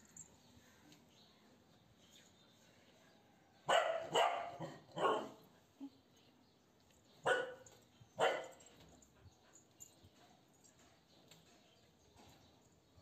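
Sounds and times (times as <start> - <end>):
dog barking: 3.7 - 5.4, 7.2 - 8.6.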